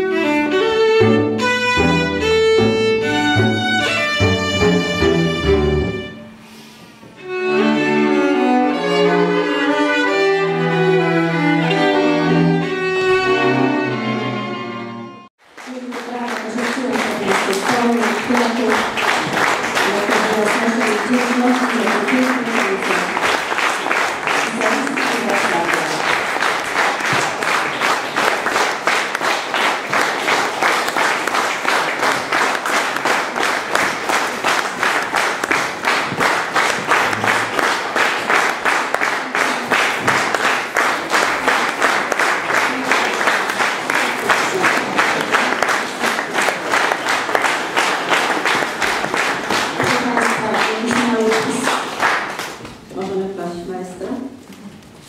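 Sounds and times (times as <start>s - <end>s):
rhythmic audience applause: 15.4s - 52.9s.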